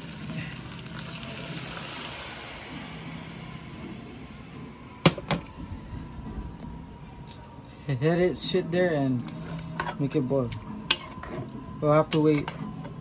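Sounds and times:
water hissing into hot pot: 0.0s - 3.6s.

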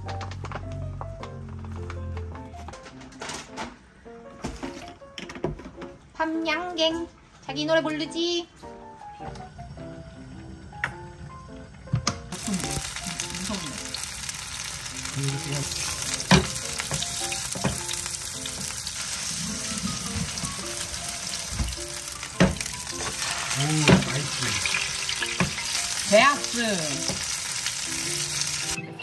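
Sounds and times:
soft background music: 0.0s - 29.0s
batter sizzling in oil: 12.3s - 28.8s
utensils clicking on pan: 12.4s - 28.8s.

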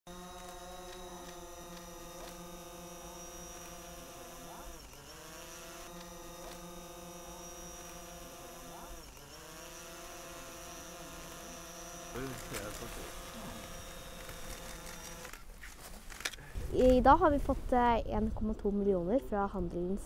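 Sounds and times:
drone propellers whining: 0.1s - 15.5s.

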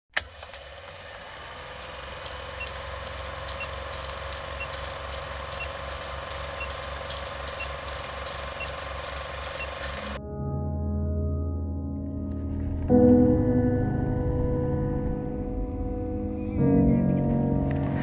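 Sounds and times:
film projector whirr and clatter: 0.1s - 10.2s
low pulsing hum: 1.4s - 10.2s
low ringing tone: 1.9s - 11.4s
short faint beeps: 2.6s - 10.2s.

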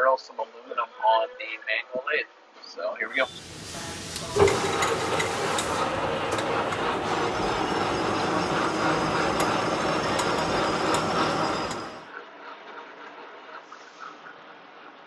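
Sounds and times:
lathe knurling metal clatter: 3.2s - 12.1s.

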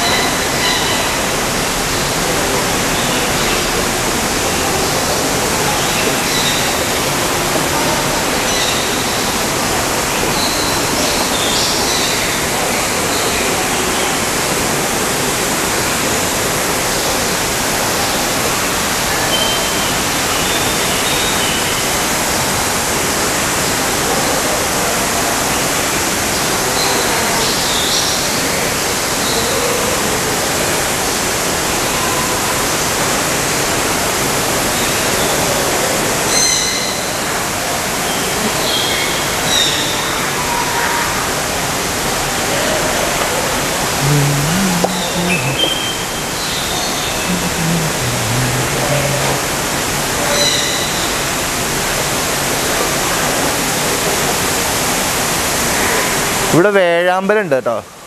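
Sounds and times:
falling water rushing: 37.7s - 57.0s.

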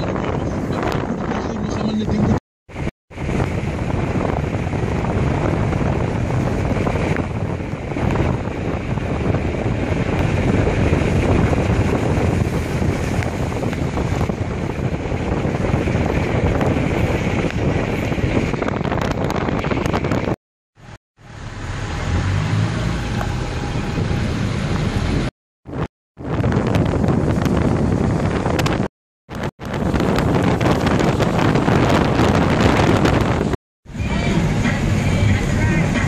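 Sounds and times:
wind buffeting microphone: 0.0s - 21.0s, 22.0s - 36.0s
car running on wet road: 0.1s - 28.9s, 29.7s - 36.0s.

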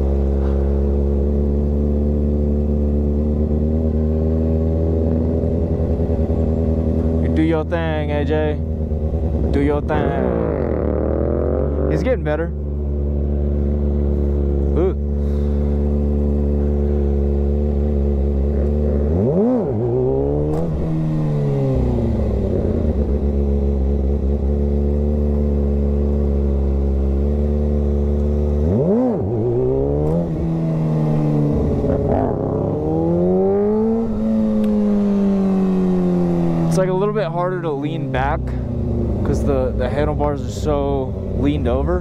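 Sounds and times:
motorcycle engine running: 0.0s - 42.0s.

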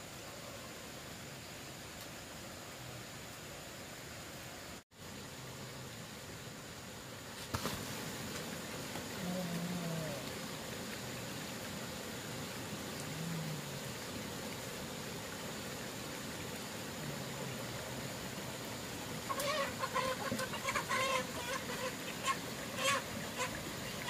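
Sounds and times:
faint steady hiss: 0.0s - 24.0s
chickens clucking: 19.3s - 24.0s.

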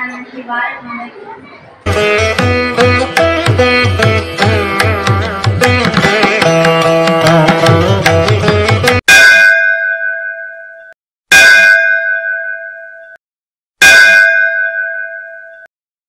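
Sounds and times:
instrumental music: 1.9s - 9.0s
bell ringing: 9.1s - 13.2s, 13.8s - 15.7s.

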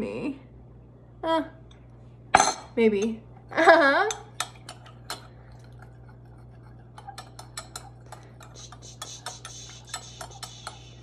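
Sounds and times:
spoon clinking against glass: 7.0s - 10.9s.

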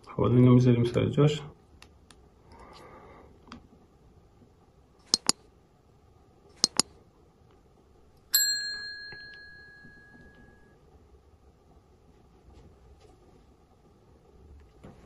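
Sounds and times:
mouse clicks: 5.0s - 5.4s, 6.6s - 6.9s
bright bell ding: 8.3s - 10.7s.

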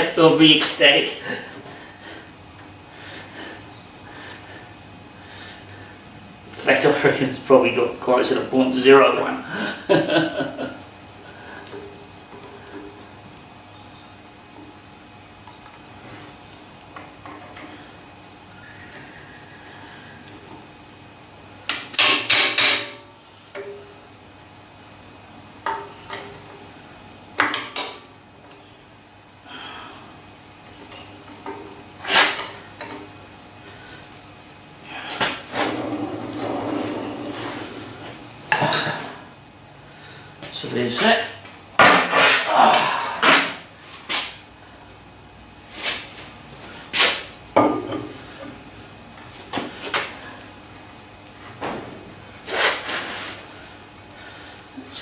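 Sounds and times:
metal scrape: 35.5s - 38.2s.

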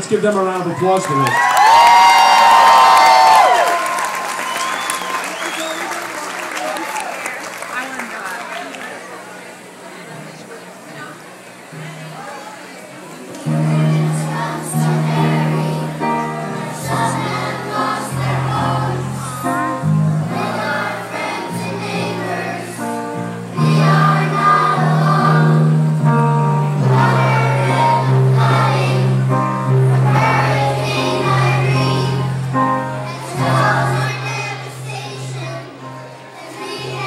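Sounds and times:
children singing in unison: 13.4s - 37.0s
instrumental accompaniment: 13.4s - 37.0s.

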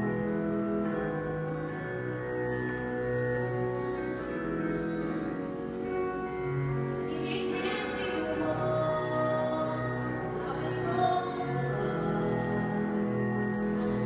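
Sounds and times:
woman singing slow song: 7.0s - 14.0s.

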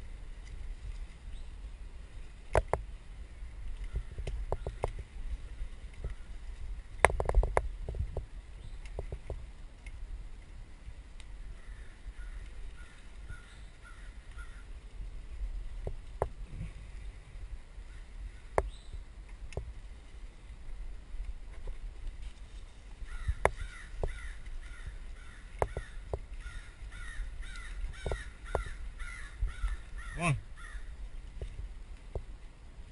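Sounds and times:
wind on camera: 0.0s - 32.9s
short pitched calls: 23.1s - 30.9s.

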